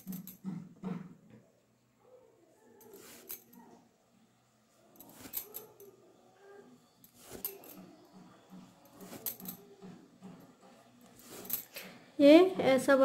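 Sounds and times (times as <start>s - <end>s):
thread pulled through canvas: 11.2s - 11.8s.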